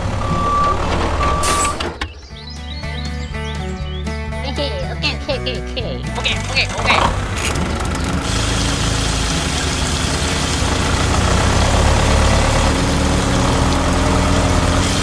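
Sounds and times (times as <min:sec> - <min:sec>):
small engine idling: 0:06.0 - 0:15.0
hiss: 0:08.2 - 0:11.2, 0:14.6 - 0:15.0.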